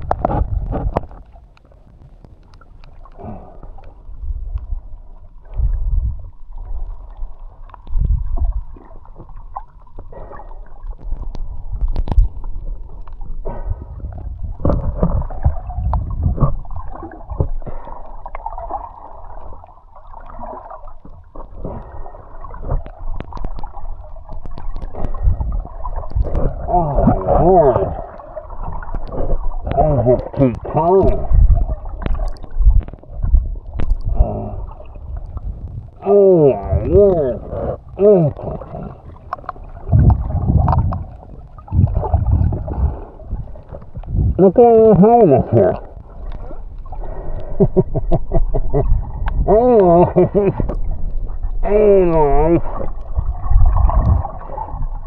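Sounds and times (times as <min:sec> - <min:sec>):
underwater water rumble: 0:00.0 - 0:55.0
small clicks and knocks: 0:11.0 - 0:12.4.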